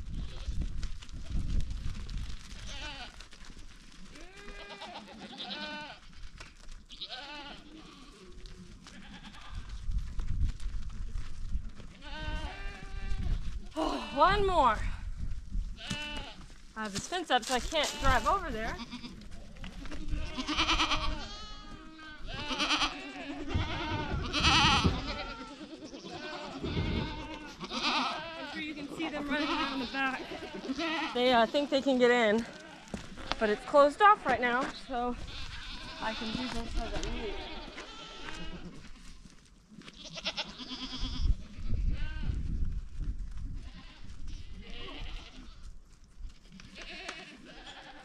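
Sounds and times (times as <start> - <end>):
goats bleating: 2.6 - 3.2, 4.2 - 6.1, 6.9 - 9.7, 11.9 - 14.8, 15.8 - 16.4, 17.4 - 39.0, 39.9 - 42.3, 43.6 - 45.6, 46.7 - 48.0.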